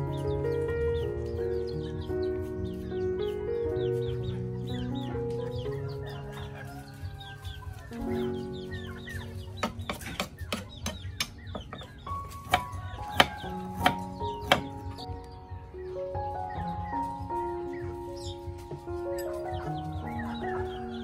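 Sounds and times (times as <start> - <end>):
background music: 0.0 - 21.0
cleaver chopping on wooden board: 9.6 - 14.8.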